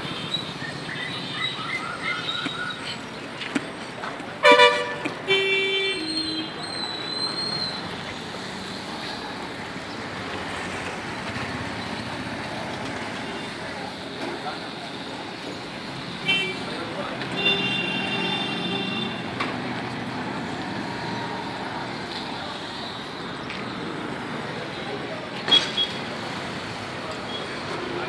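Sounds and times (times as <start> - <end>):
road hum: 0.0 - 28.0
vehicle horn: 4.4 - 6.6, 17.4 - 19.2
motorcycles running: 8.4 - 16.0.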